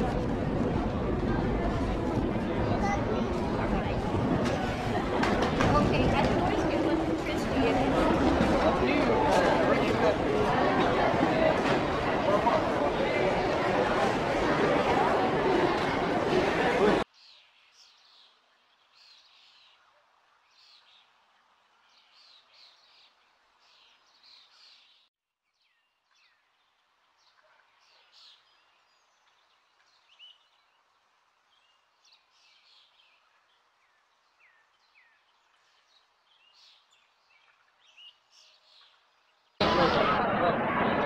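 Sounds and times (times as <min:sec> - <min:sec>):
small birds chirping: 0:17.1 - 0:39.6.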